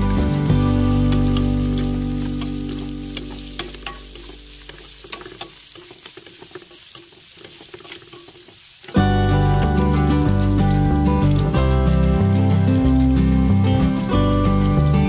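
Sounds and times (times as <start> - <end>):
background music: 0.0 - 4.7, 9.0 - 15.0
vegetables sizzling in hot oil: 0.0 - 15.0
spatula clicking and scraping pan: 0.5 - 9.0.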